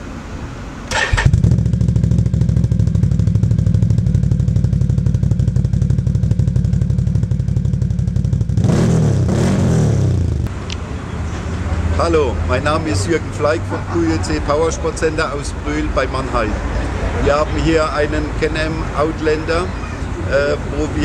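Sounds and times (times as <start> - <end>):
quad engine starting and idling: 0.9 - 4.6
engine revving: 0.9 - 4.8, 7.7 - 10.9.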